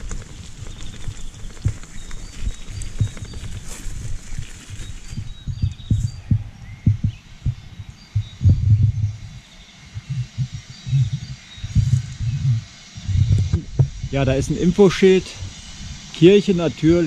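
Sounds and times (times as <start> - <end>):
low thuds and rumble: 0.0 - 14.7
faint bird chirps: 0.6 - 13.7.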